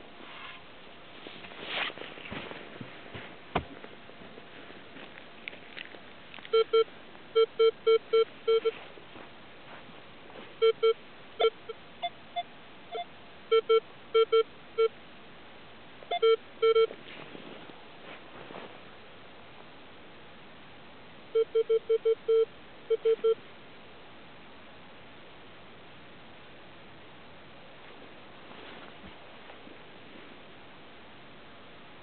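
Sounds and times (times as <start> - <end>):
metal detector beeps: 6.5 - 8.8, 10.6 - 14.4, 16.1 - 16.9, 21.4 - 23.4.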